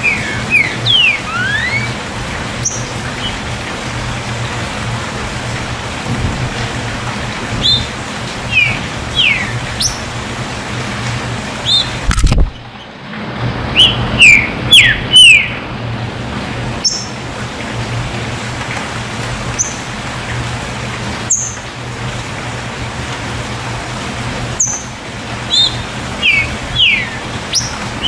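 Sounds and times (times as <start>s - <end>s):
bird whistling sharp notes: 0.0s - 2.0s, 13.8s - 15.6s.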